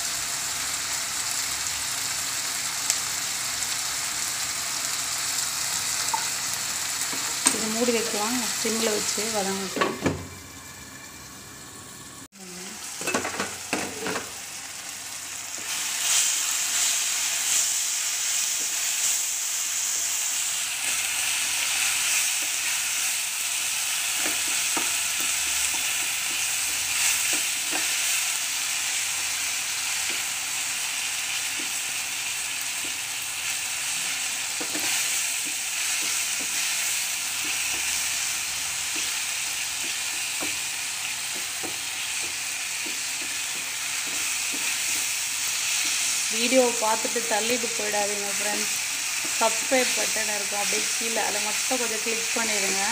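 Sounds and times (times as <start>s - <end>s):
masala sizzling in oil: 0.0s - 52.9s
spatula scraping and tapping pan: 34.0s - 36.8s, 37.4s - 38.0s, 39.8s - 40.7s, 41.3s - 45.2s.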